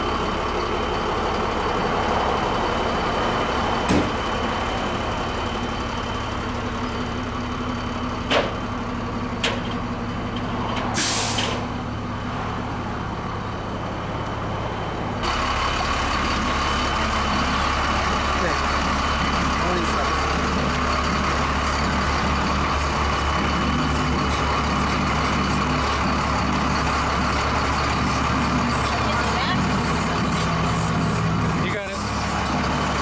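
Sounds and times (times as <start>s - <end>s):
truck engine idling: 0.0s - 33.0s
air hissing: 11.0s - 11.7s.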